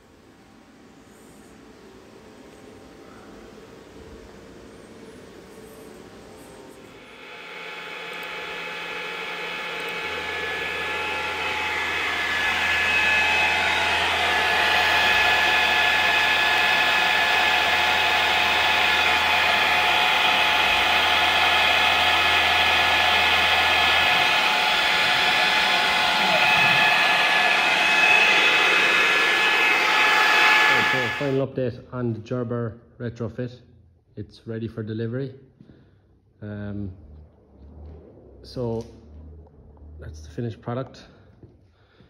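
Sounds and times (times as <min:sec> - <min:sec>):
low hum: 0:00.0 - 0:32.0, 0:35.6 - 0:41.3
cnc router whirring: 0:05.3 - 0:31.4.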